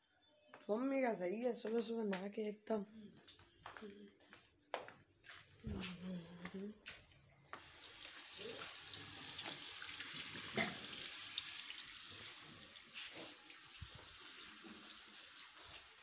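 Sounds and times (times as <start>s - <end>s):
water running from tap: 7.6s - 16.0s.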